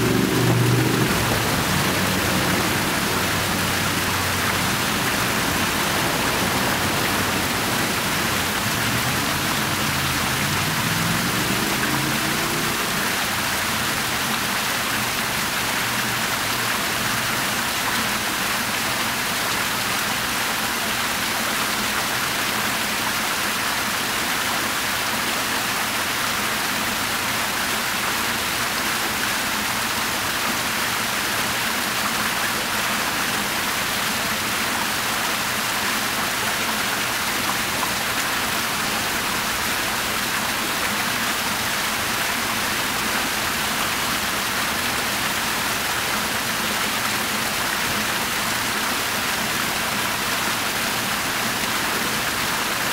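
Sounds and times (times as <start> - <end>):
low tone rising in pitch: 0.0 - 12.9
fountain water splashing: 0.0 - 52.9.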